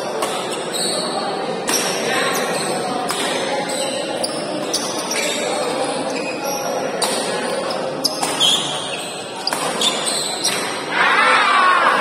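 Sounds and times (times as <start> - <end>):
murmur of spectators in a hall: 0.0 - 12.0
badminton rackets hitting shuttlecock: 0.2 - 0.6, 1.6 - 2.0, 3.0 - 3.5, 7.0 - 7.4, 8.1 - 8.8, 9.4 - 10.8.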